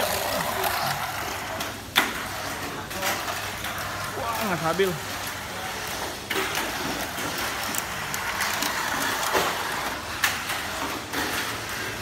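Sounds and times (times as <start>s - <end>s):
toy car motor whirring: 0.0s - 1.8s, 5.2s - 10.0s.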